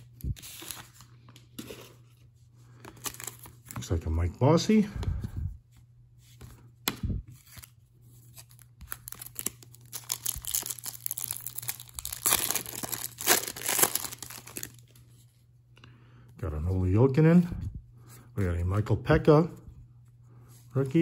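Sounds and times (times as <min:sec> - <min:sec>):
cards being handled: 0:00.0 - 0:04.1, 0:05.8 - 0:15.2
wrapper tearing and crinkling: 0:08.4 - 0:14.9.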